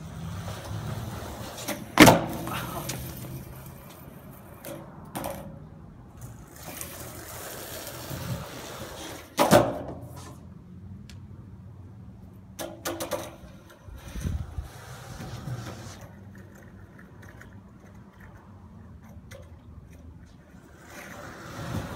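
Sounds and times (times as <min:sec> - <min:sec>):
skateboard clacks: 0:00.1 - 0:05.6, 0:06.2 - 0:10.3, 0:12.6 - 0:13.9, 0:14.7 - 0:21.9
skateboard slapping down on concrete: 0:00.4 - 0:04.0, 0:06.6 - 0:10.1
skateboard tail popping: 0:00.4 - 0:04.0, 0:06.6 - 0:10.2.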